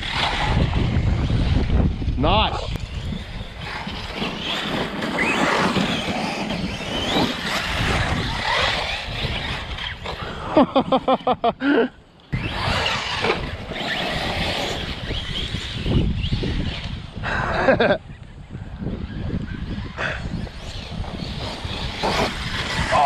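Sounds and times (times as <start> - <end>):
electric motors whining: 0.0 - 11.4, 12.1 - 17.2, 17.8 - 23.0
loud pulsing whines: 12.2 - 23.0.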